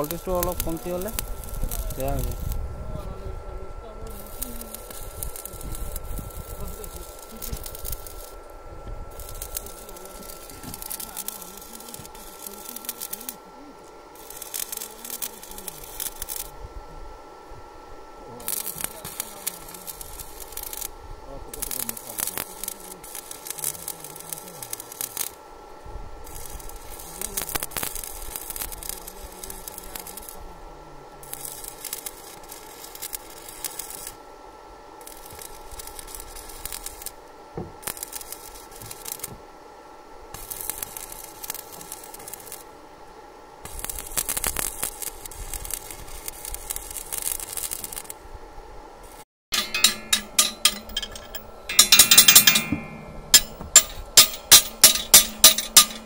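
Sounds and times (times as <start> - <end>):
arc welding crackling: 0.0 - 56.0
metallic knocks on rods: 49.5 - 56.0.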